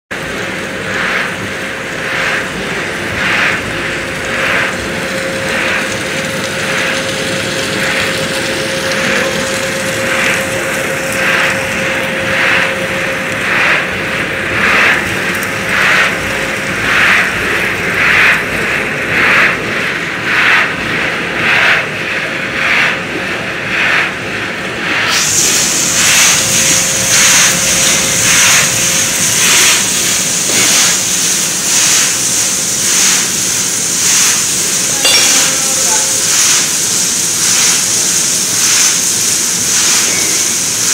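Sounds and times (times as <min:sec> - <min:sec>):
machine drone: 0:00.0 - 0:40.9
motor hum: 0:00.1 - 0:40.6
corn curls tumbling in drum: 0:00.3 - 0:20.8.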